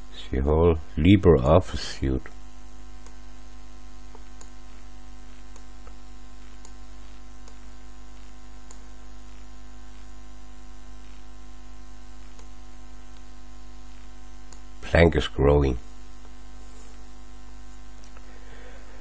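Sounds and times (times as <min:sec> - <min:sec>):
electrical hum: 0:00.0 - 0:19.0
faint clicks: 0:04.1 - 0:04.6.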